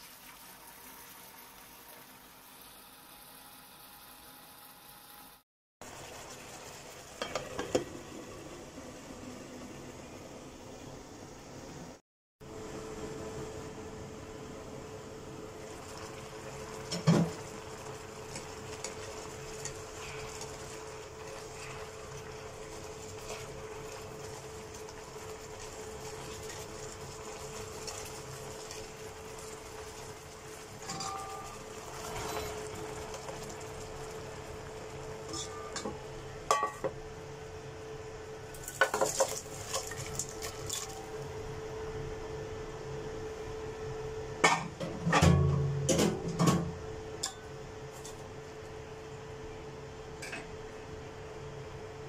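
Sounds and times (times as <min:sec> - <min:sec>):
glass pot lid clanking: 0:30.8 - 0:31.5
clinks in a metal pot: 0:30.8 - 0:31.6, 0:35.3 - 0:36.9, 0:47.2 - 0:47.5.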